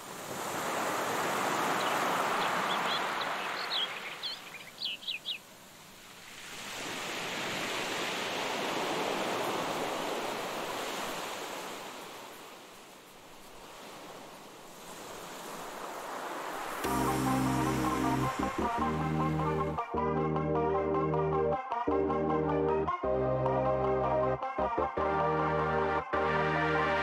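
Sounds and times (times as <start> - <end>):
ocean waves washing in: 0.0 - 19.8
high bird chirps: 1.8 - 5.4.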